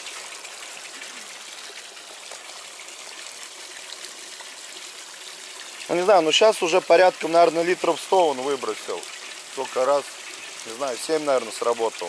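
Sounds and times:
water trickling: 0.0s - 12.0s.

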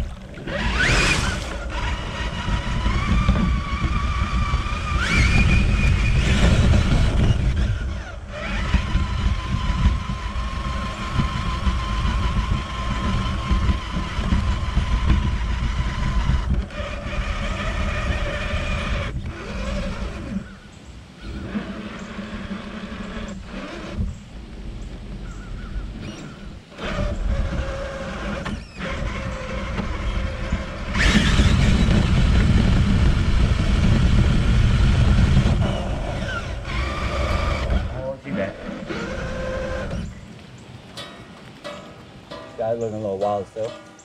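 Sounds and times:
water splashing: 0.0s - 3.3s
electric motor whining: 0.0s - 40.5s
truck rumbling and rattling: 0.0s - 44.0s.

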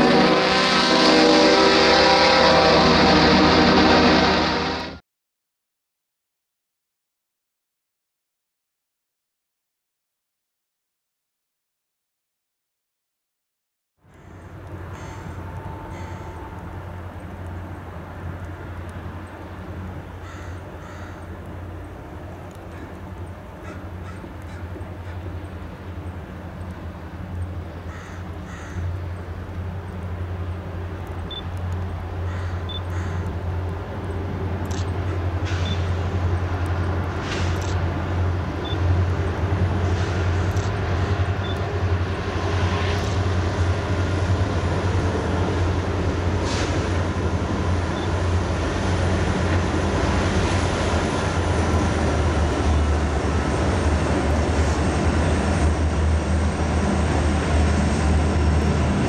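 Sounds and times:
diesel locomotive engines droning: 0.0s - 5.0s, 14.0s - 59.0s.

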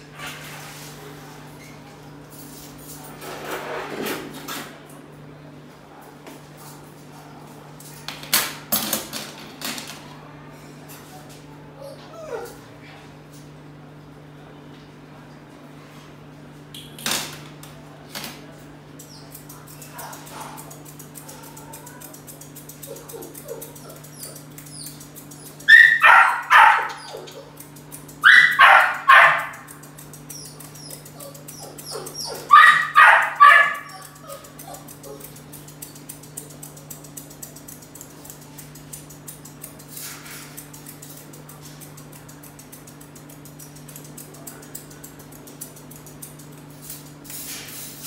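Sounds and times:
dog barking: 25.7s - 27.3s, 28.2s - 29.7s, 31.6s - 34.2s.

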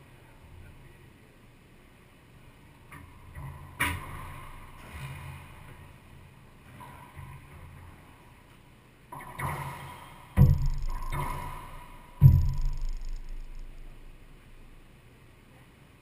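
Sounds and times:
ball striking court walls: 10.4s - 13.8s.

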